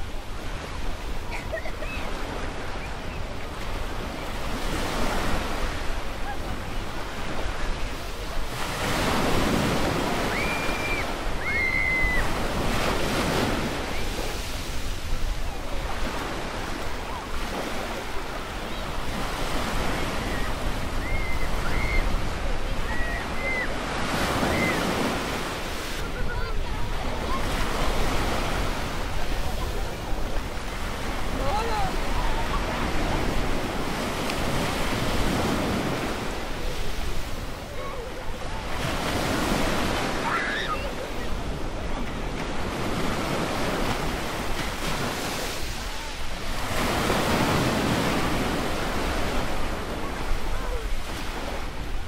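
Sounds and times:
waves washing onto beach: 0.0 - 52.0.

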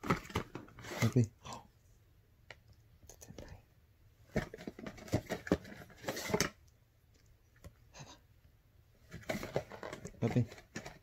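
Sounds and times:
cardboard scraping rustle: 0.0 - 1.2, 9.1 - 11.0.

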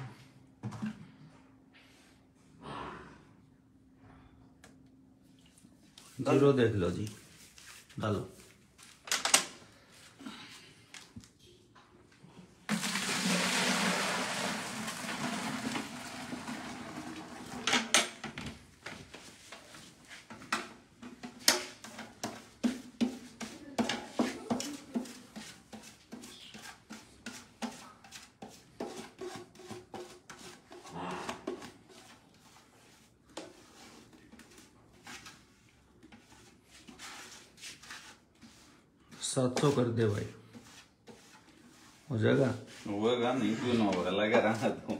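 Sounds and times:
milk pouring into a bucket: 12.6 - 18.0.

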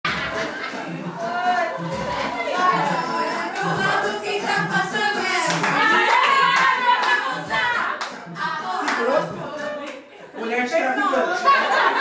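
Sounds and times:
dance music with steady beat: 0.0 - 10.4
women singing: 0.1 - 10.4
hands clapping: 5.4 - 7.2, 8.0 - 8.2, 8.8 - 9.2.

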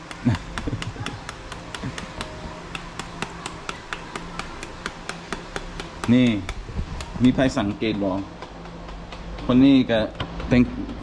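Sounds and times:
knife chopping papaya: 0.0 - 11.0.

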